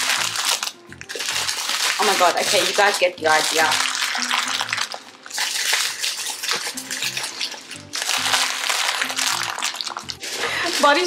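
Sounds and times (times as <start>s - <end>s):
background music of low notes: 0.0s - 11.0s
plastic wrappers crinkling: 0.0s - 11.0s.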